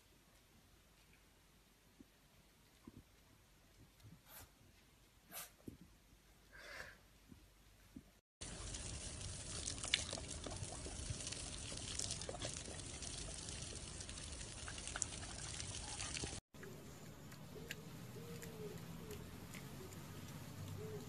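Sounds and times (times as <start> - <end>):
running water rushing: 8.4 - 16.4.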